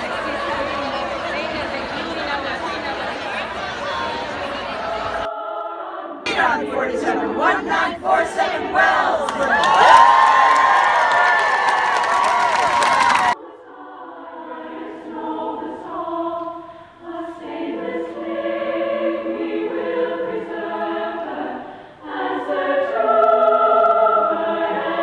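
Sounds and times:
choir singing held chords: 0.0 - 25.0.

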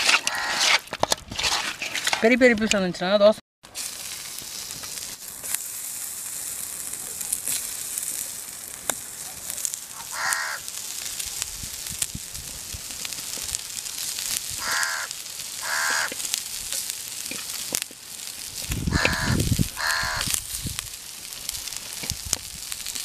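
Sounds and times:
crow cawing: 0.2 - 0.7, 9.9 - 10.7, 14.6 - 16.2, 18.9 - 20.3
fish sizzling on a griddle: 3.7 - 23.0.

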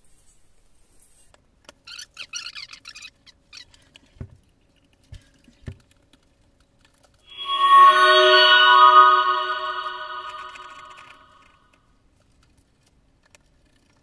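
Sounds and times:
background music: 7.3 - 11.2.

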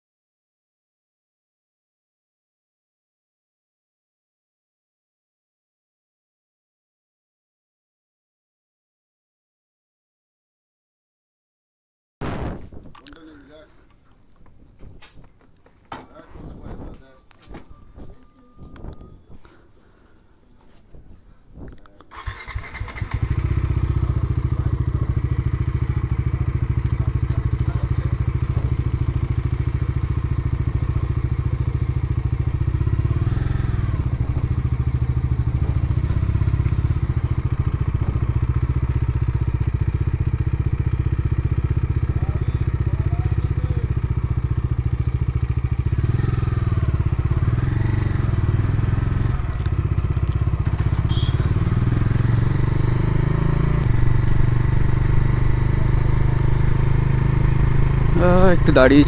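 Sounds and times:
motorcycle engine running: 22.1 - 59.0.

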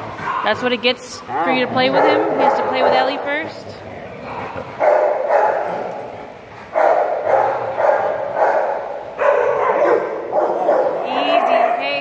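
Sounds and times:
dogs barking: 1.3 - 3.6, 4.2 - 12.0.

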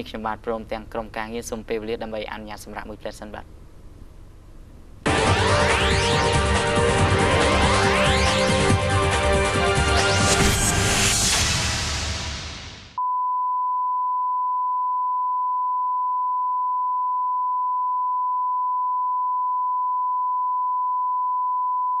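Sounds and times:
tv title music sting: 5.1 - 13.0.

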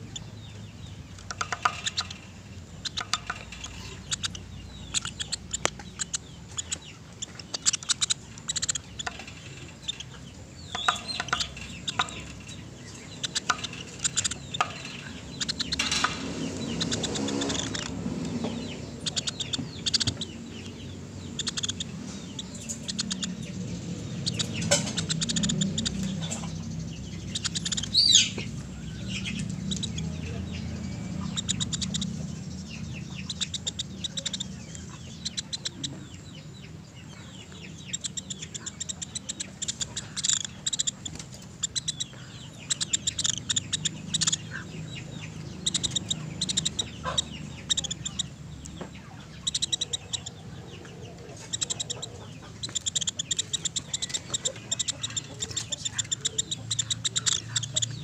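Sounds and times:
woodpecker calling: 0.0 - 58.0.

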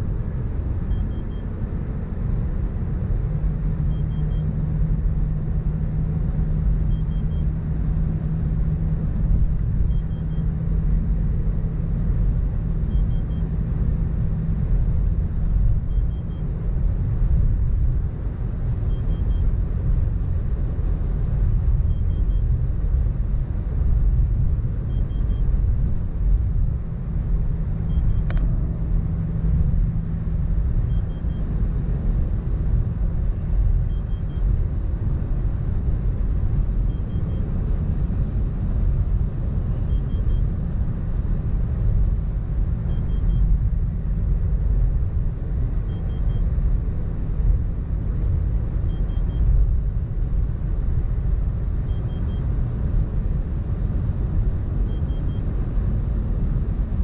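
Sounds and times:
car cabin road rumble: 0.0 - 57.0
sharp click: 28.2 - 28.6.

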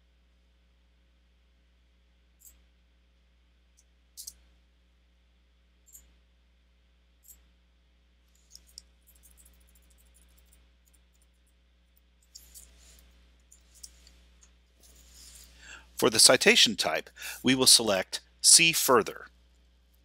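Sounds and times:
computer mouse clicks: 4.2 - 4.4.

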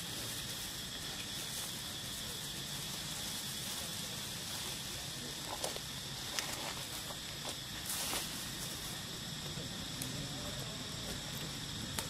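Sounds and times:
high insect drone: 0.0 - 12.0.

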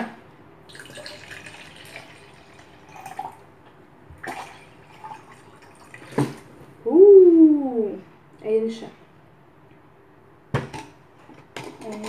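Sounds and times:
water trickling into a cup: 0.7 - 3.4, 4.2 - 6.2.

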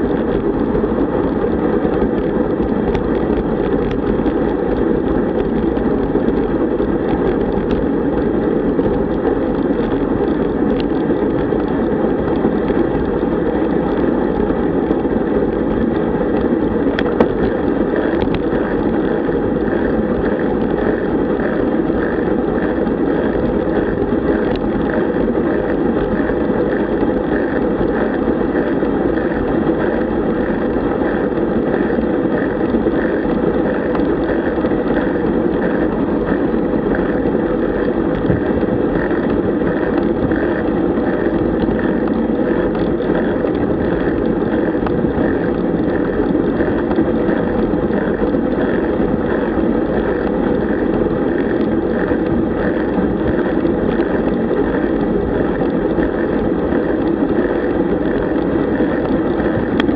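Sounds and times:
bicycle tyre road noise: 0.0 - 59.9
wind rush on microphone: 0.0 - 59.9.

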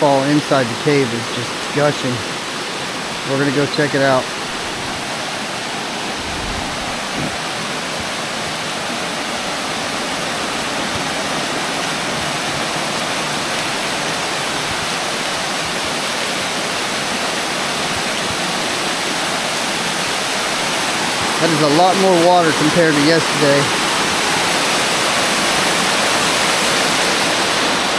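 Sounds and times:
waterfall rushing and splashing: 0.0 - 27.9.

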